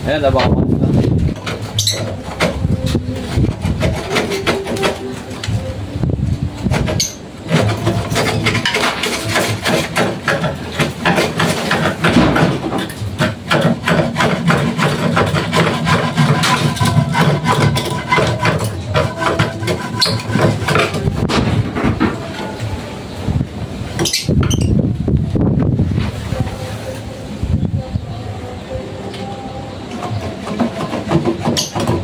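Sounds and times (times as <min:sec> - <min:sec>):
wind rumbling on microphone: 0:00.0 - 0:04.3, 0:05.5 - 0:07.0, 0:20.4 - 0:28.5
hand saw cutting: 0:01.4 - 0:05.6, 0:06.7 - 0:21.3.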